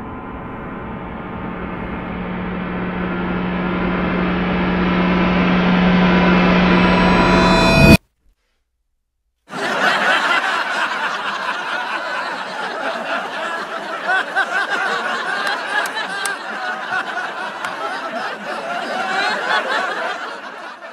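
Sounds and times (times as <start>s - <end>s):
continuous laughter: 9.5s - 20.9s.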